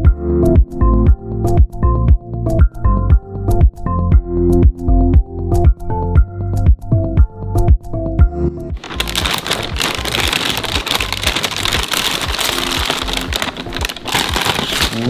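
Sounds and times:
background music with beat: 0.0s - 14.9s
plastic bag crinkling: 8.8s - 15.0s.

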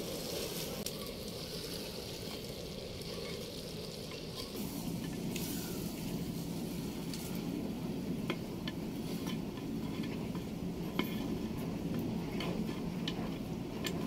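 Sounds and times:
spatula scraping rice in pot: 9.0s - 14.0s.

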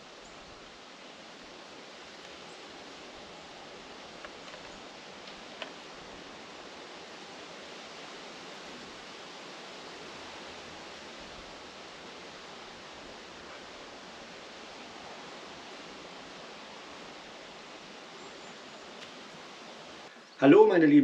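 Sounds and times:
forest ambience hiss: 0.0s - 21.0s
faint clicks: 4.2s - 5.8s, 19.0s - 19.2s.

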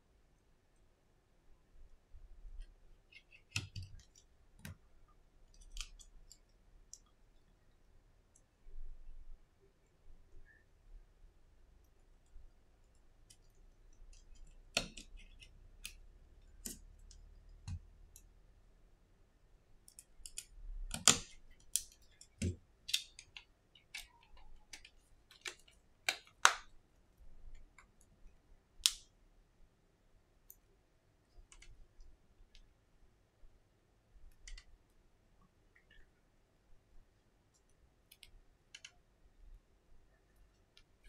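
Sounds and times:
small clicks and taps: 2.6s - 7.2s, 19.9s - 26.7s, 34.3s - 36.1s, 37.5s - 39.0s.

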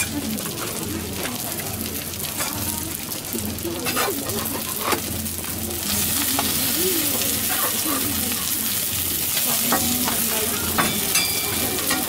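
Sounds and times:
pancake sizzling on griddle: 0.0s - 12.0s
metal spatulas scraping griddle: 3.8s - 5.1s.

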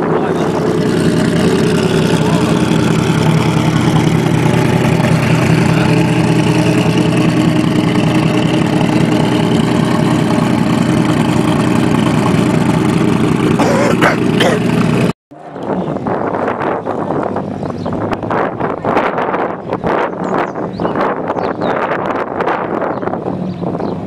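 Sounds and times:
car engine idling: 0.0s - 15.1s.

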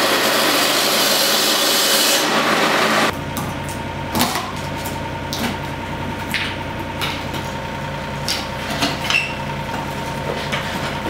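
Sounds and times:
engine idling: 2.3s - 11.0s.

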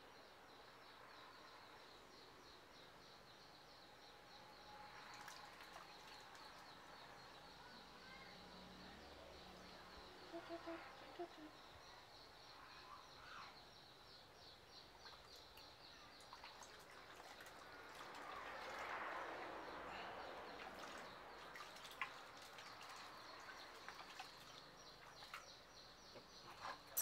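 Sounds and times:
small water splashes: 5.0s - 6.8s, 16.2s - 25.5s.

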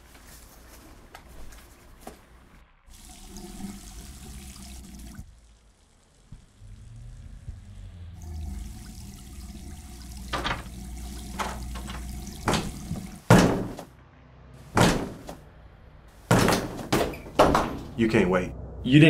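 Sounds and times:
shower water running: 2.9s - 13.9s.

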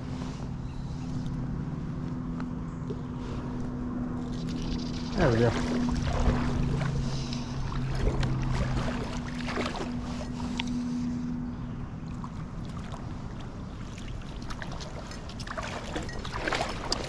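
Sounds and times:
low steady hum: 0.0s - 17.0s
creek water running and splashing: 4.2s - 10.9s, 12.0s - 17.0s.

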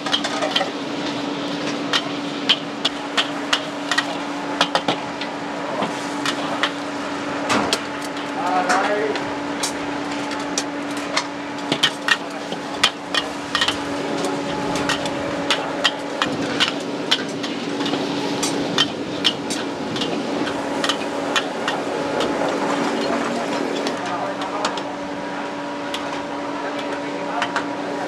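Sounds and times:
steady sizzling: 0.0s - 26.4s
constant low hum: 0.0s - 28.0s.

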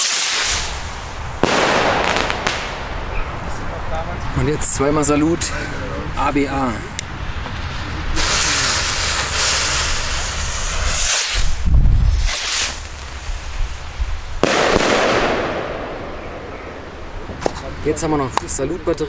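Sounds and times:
rockets launching with rushing hiss: 0.0s - 3.8s, 7.2s - 17.6s
firework bang with echo: 1.4s - 3.3s, 14.4s - 16.6s.

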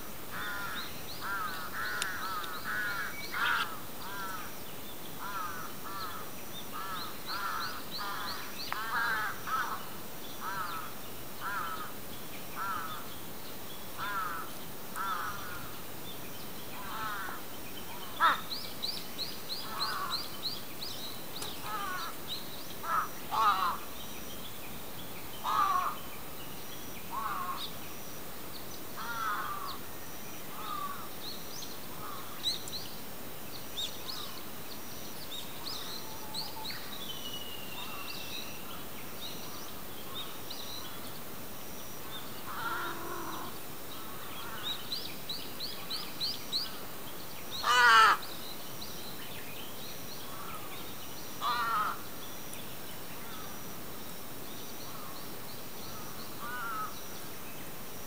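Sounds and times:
small birds chirping: 0.0s - 58.0s
crows cawing: 0.3s - 4.5s, 5.2s - 12.0s, 12.6s - 13.0s, 14.0s - 15.7s, 16.8s - 17.4s, 18.1s - 18.5s, 19.6s - 20.2s, 21.6s - 22.2s, 22.8s - 23.8s, 25.4s - 26.0s, 27.1s - 27.7s, 29.0s - 29.8s, 30.5s - 31.1s, 32.0s - 32.4s, 42.5s - 44.8s, 47.6s - 48.3s, 51.4s - 52.1s, 56.4s - 57.0s.

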